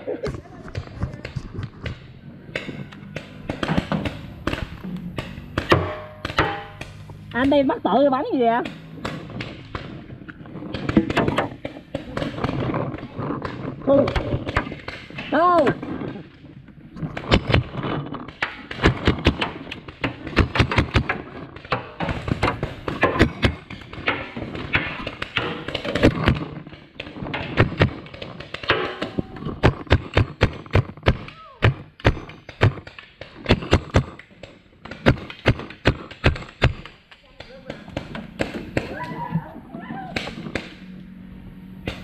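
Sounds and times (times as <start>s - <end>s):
paintball markers firing: 8.7s - 39.1s.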